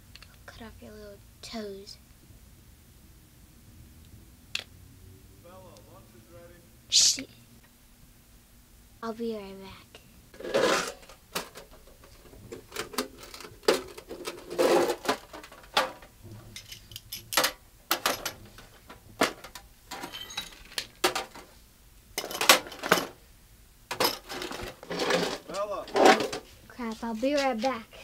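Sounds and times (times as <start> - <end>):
small hard objects clinking: 19.9 - 21.3.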